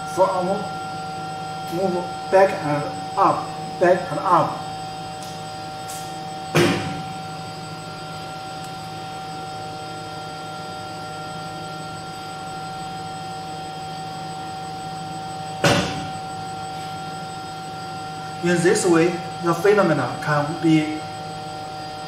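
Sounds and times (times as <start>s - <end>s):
machine electric hum with tones: 0.0s - 22.0s
sharp knock: 6.6s - 7.0s, 15.6s - 16.1s.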